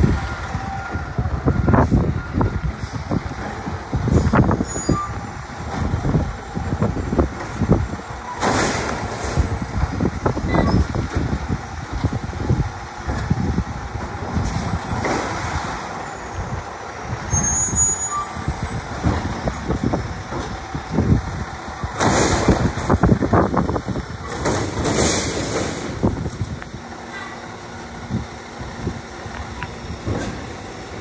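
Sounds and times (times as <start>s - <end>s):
garbage truck engine revving: 0.0s - 31.0s
trash cart knocks and clanks: 5.6s - 15.7s, 18.9s - 21.2s, 21.8s - 27.4s, 30.0s - 30.7s.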